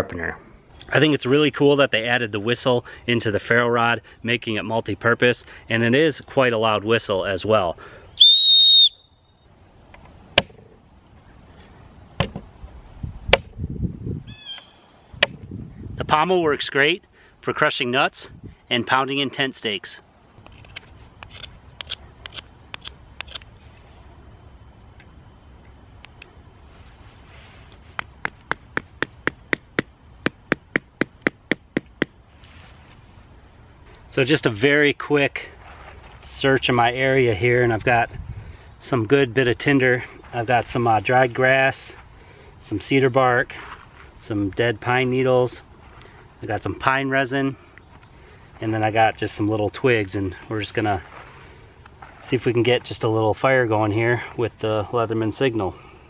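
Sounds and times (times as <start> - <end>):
high-pitched whistle blast: 8.2 - 9.4
hammering stake into ground: 10.3 - 10.7, 13.3 - 13.6, 15.2 - 15.5, 28.0 - 32.2.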